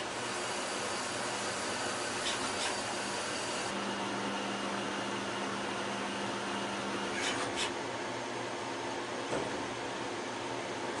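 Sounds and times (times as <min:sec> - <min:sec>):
lathe machine hum: 0:00.0 - 0:07.4.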